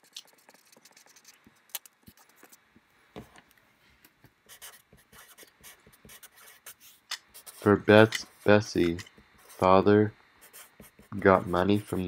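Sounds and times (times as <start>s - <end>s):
faint scratching: 4.5s - 12.0s.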